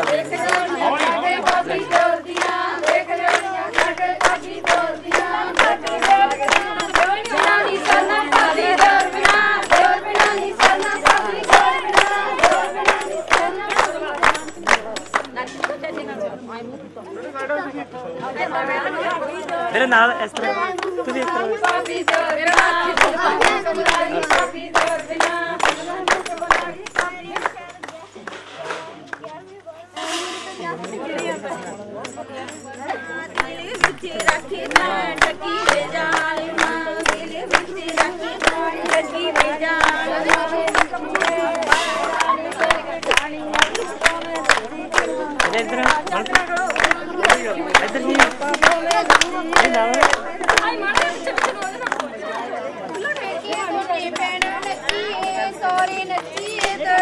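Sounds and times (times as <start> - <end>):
women singing folk song: 0.0 - 15.4, 21.0 - 27.8, 33.1 - 51.8, 53.7 - 57.0
rhythmic hand claps: 0.0 - 16.1, 19.0 - 29.5, 30.6 - 57.0.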